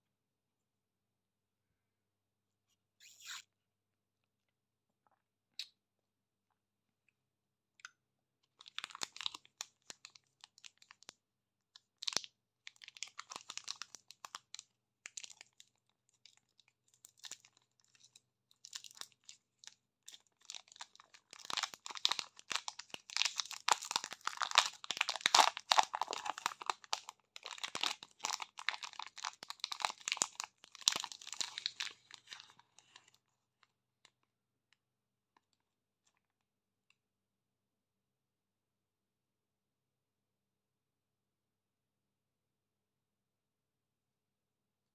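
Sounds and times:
plastic wrapper crinkling and tearing: 8.6 - 11.2, 11.8 - 33.2.

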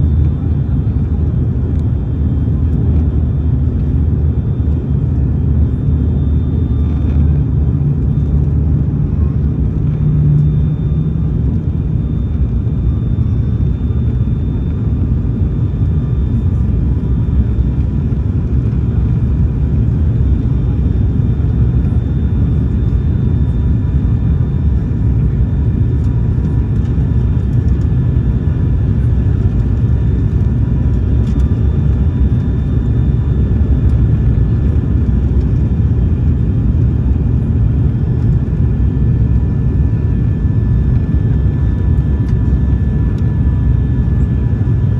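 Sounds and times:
low propeller tone: 0.0 - 44.9
turboprop cabin drone: 0.0 - 44.9.

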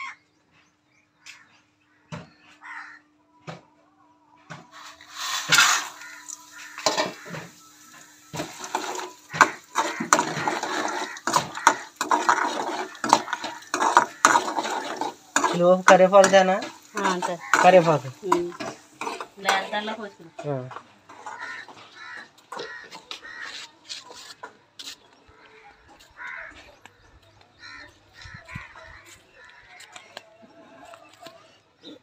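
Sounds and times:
metal spatula scraping pan: 4.7 - 24.4.

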